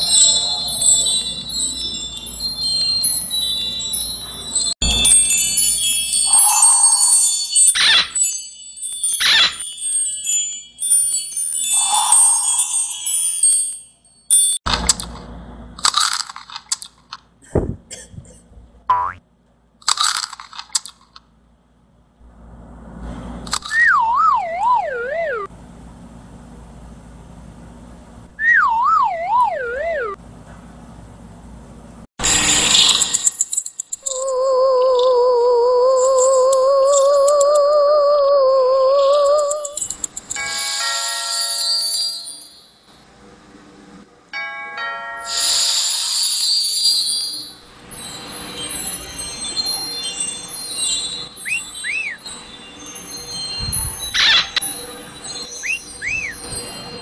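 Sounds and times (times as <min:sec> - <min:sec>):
bright sparkling shimmer: 0:00.0 - 0:14.6, 0:44.4 - 0:57.0
magical bell-like chime: 0:00.0 - 0:14.6, 0:39.7 - 0:42.9, 0:44.4 - 0:57.0
cartoon warbling whistle: 0:23.7 - 0:25.5, 0:28.4 - 0:30.2, 0:51.4 - 0:52.2, 0:54.2 - 0:54.6, 0:55.6 - 0:56.4.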